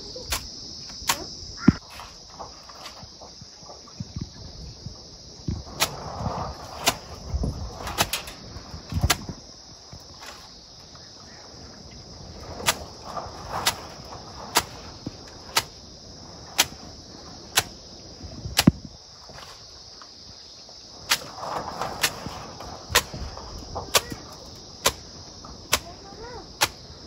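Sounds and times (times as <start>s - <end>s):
grass bundle smacking mud wall: 5.7s - 9.4s, 12.5s - 15.8s, 16.5s - 16.9s.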